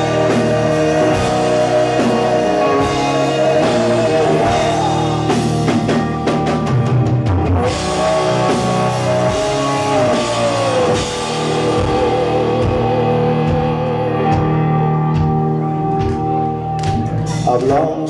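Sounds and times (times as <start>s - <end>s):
lead guitar sliding down: 0.0s - 17.4s
bass guitar: 0.0s - 18.0s
distorted electric guitars: 0.0s - 18.0s
drum kit: 0.0s - 18.0s.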